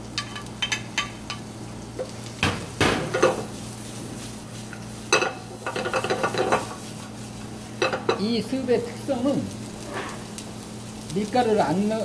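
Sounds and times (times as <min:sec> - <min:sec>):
light sizzle: 0:00.0 - 0:12.0
pan knocking on metal grate: 0:02.4 - 0:03.4.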